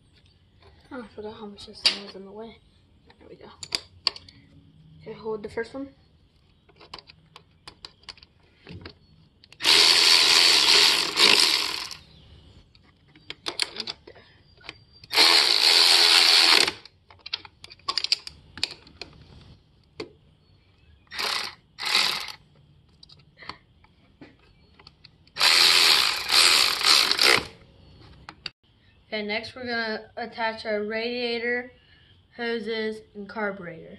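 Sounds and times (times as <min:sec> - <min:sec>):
hand tools clicking: 0:09.4 - 0:12.0, 0:14.6 - 0:19.1, 0:21.1 - 0:22.4, 0:24.8 - 0:27.6
cordless power tool driving bolts: 0:09.5 - 0:12.0, 0:15.0 - 0:17.4, 0:21.1 - 0:22.4, 0:25.3 - 0:27.6.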